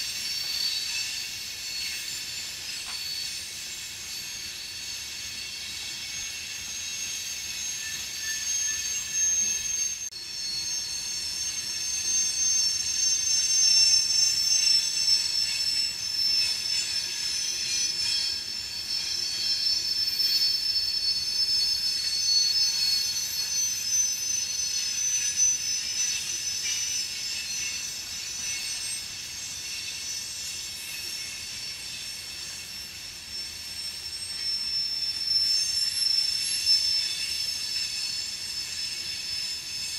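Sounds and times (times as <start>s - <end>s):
train wheels squealing: 0.0s - 39.9s.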